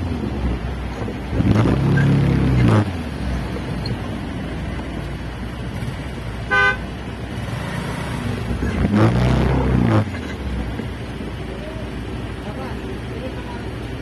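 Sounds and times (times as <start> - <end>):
engine revving: 0.0 - 4.3, 5.6 - 10.8
traffic noise: 0.0 - 14.0
vehicle horn beep: 6.5 - 6.9.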